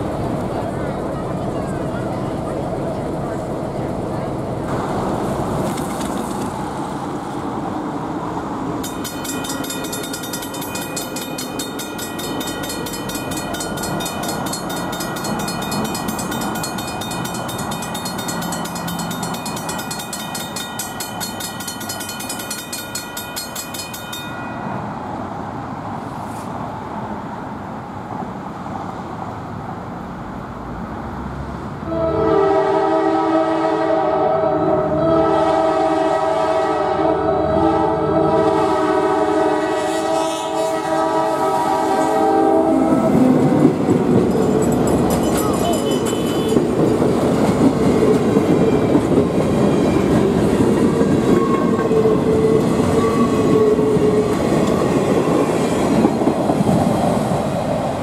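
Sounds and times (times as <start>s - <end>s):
railroad crossing bell ringing: 8.8s - 25.3s, 44.0s - 55.0s
locomotive air horn blowing: 31.8s - 43.5s.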